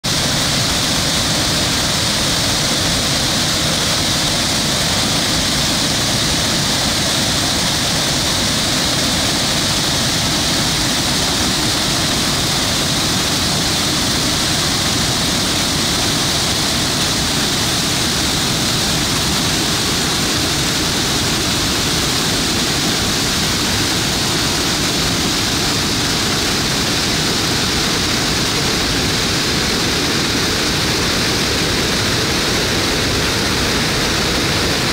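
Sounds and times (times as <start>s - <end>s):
waterfall rushing over rocks: 0.0s - 34.9s.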